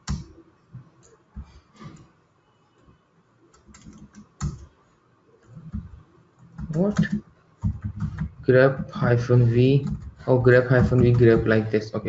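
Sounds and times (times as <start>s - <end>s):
computer keyboard typing: 3.5s - 4.7s, 5.4s - 11.7s.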